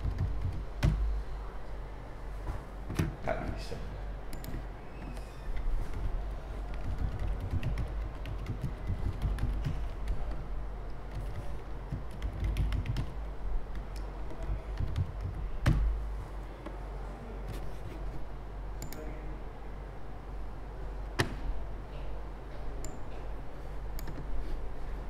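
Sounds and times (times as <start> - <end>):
laptop keyboard typing: 0.0 - 1.1, 5.5 - 16.0.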